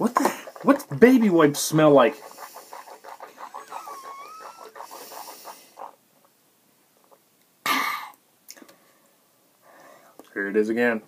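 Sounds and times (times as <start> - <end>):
raspy wheezy breathing: 0.2 - 1.0, 2.0 - 6.0, 9.6 - 10.2
loud burst of breath: 8.9 - 10.2.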